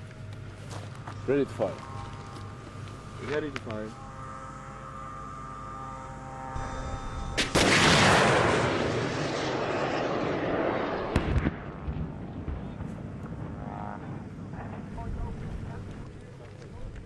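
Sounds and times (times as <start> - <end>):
steady hum: 0.0 - 17.0
missile rocket motor roar: 0.2 - 16.2
sharp crack: 7.4 - 13.4.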